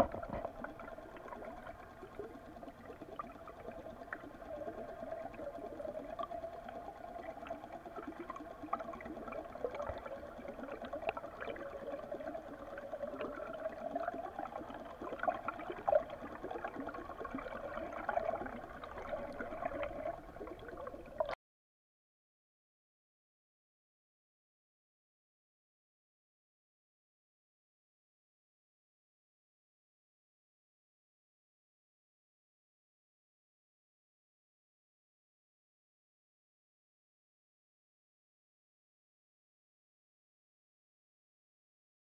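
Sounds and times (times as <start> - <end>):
underwater water rushing and gurgling: 0.0 - 21.4.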